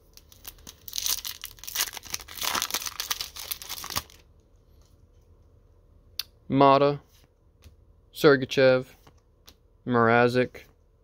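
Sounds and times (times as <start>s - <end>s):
wrapper tearing and crinkling: 0.1s - 4.2s.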